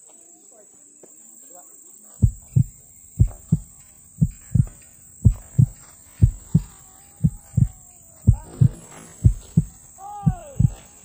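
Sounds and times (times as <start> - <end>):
heartbeat thumps: 2.2 - 11.0.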